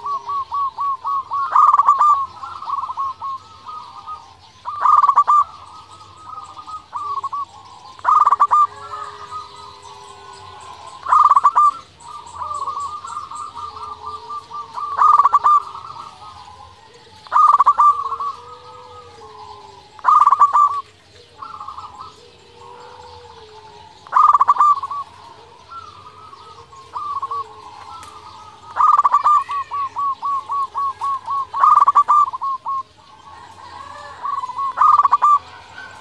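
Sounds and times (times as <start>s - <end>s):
dove cooing: 0.0s - 36.0s.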